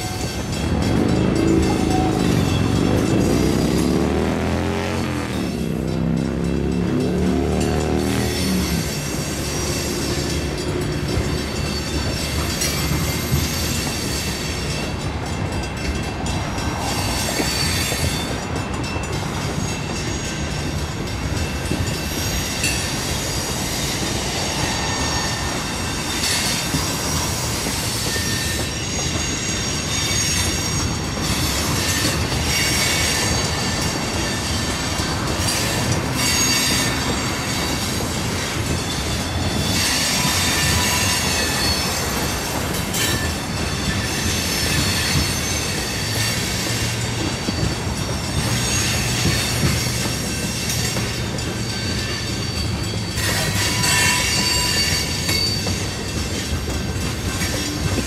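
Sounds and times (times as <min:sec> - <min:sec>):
train wheels clacking over rail joints: 0:00.0 - 0:58.0
high-pitched wheel squeal: 0:22.0 - 0:56.5.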